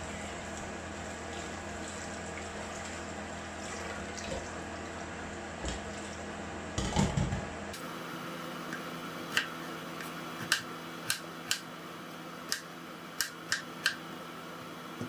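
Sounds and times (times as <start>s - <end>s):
sponge scrubbing bowl: 0.0s - 4.6s.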